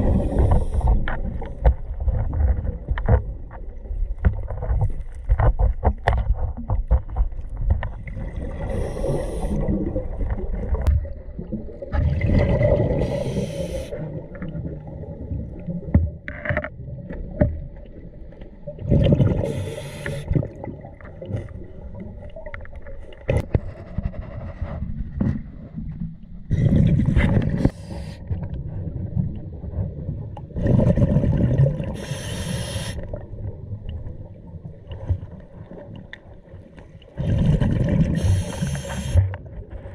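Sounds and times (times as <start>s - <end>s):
underwater exhaust bubbles: 0.0s - 23.7s, 25.5s - 39.9s
low underwater rumble: 0.0s - 32.1s
knocks and scrapes: 4.2s - 8.0s, 23.3s - 26.0s.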